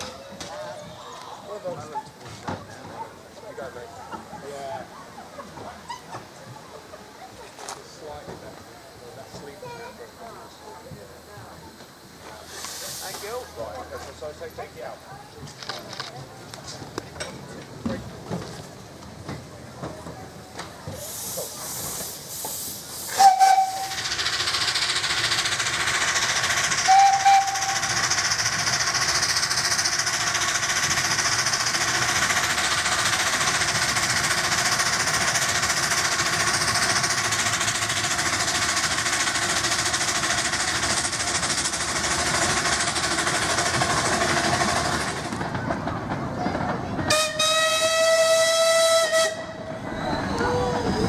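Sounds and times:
steam hissing: 8.3 - 15.0, 20.7 - 45.5
steam whistle toots: 23.0 - 24.0, 26.8 - 28.0, 47.1 - 50.7.

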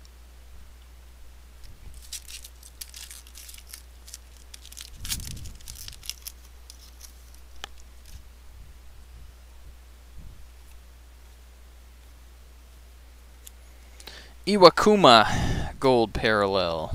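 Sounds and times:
cards clicking and sliding: 2.0 - 8.2.

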